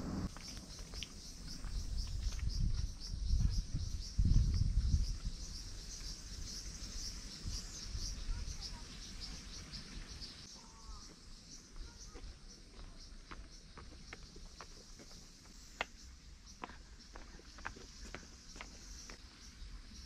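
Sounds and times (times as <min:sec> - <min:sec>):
low rumble on microphone: 0:00.0 - 0:00.3
insects chirping: 0:00.0 - 0:20.0.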